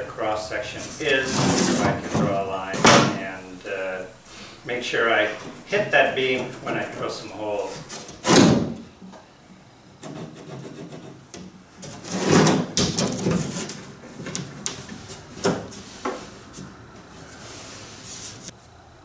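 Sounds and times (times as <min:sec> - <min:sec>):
wood scraping on plywood: 0:00.3 - 0:03.4, 0:04.3 - 0:08.2, 0:10.0 - 0:11.2, 0:11.8 - 0:18.5.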